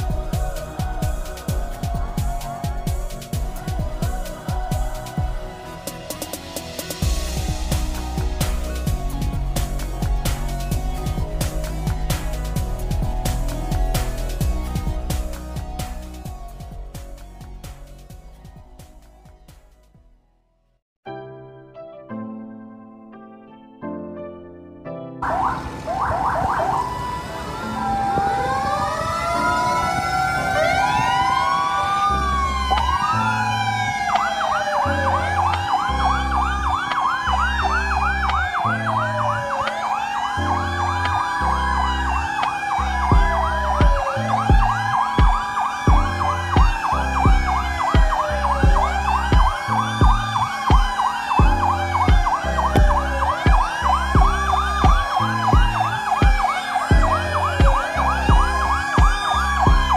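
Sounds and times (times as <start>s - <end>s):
fire truck sirens wailing: 0.0s - 19.3s, 25.2s - 59.9s
background music with steady beat: 0.0s - 20.2s, 27.9s - 59.9s
siren fast yelp: 25.2s - 59.9s.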